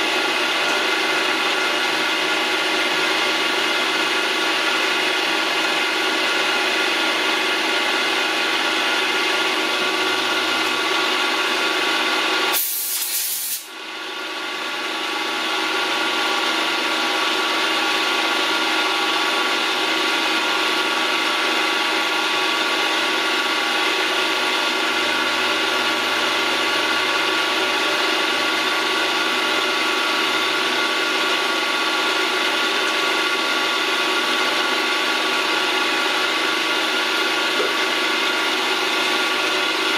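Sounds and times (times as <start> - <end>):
milling machine humming: 0.0 - 12.5, 15.2 - 39.9
loud hiss: 12.5 - 13.7.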